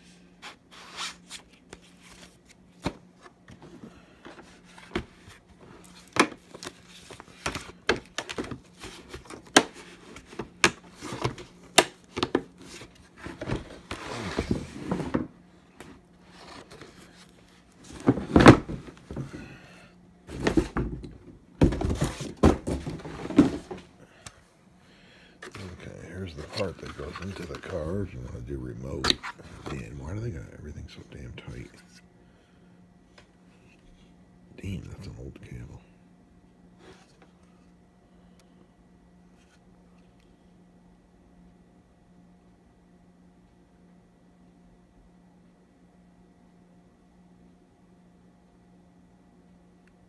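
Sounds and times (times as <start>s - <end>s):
paper and plastic wrap rustling: 25.4s - 30.0s.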